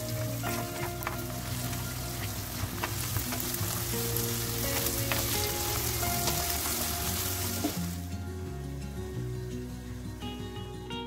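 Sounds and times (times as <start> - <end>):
vegetables sizzling in oil: 0.0 - 8.2
spatula clicking and scraping pan: 0.1 - 7.7.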